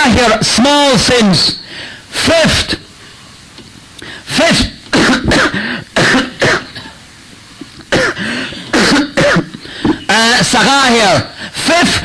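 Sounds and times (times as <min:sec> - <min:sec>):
man coughing: 0:04.3 - 0:07.0, 0:07.8 - 0:10.1.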